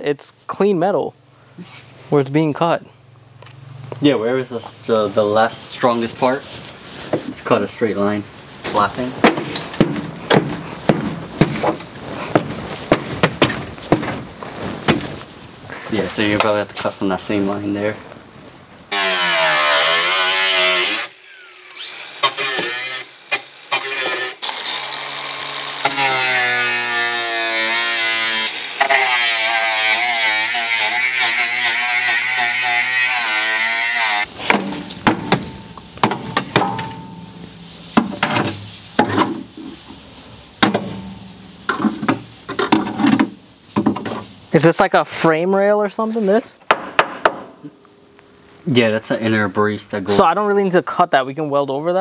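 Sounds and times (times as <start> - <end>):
angle grinder cutting metal: 18.9 - 34.3
metal knocks and clanks: 34.5 - 37.4.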